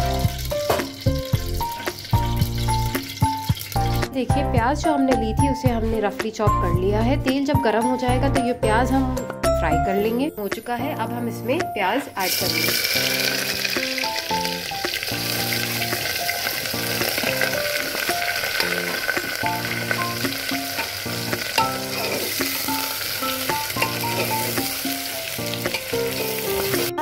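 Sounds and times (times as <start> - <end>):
onions sizzling in hot oil: 0.0 - 4.1, 12.2 - 27.0
soft background music: 0.0 - 27.0
metal spoon stirring: 15.8 - 24.7.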